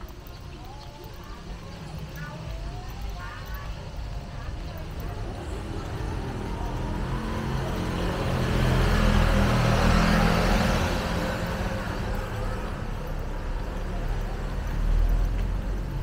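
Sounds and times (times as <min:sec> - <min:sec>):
vehicle passing by: 0:03.4 - 0:16.0.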